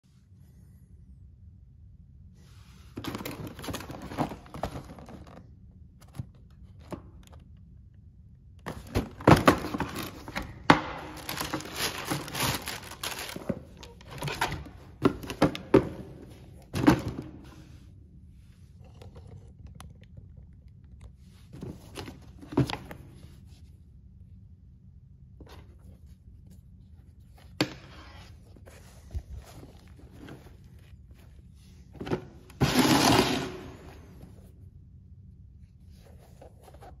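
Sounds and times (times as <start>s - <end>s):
paper crinkling and rustling: 11.1s - 15.6s.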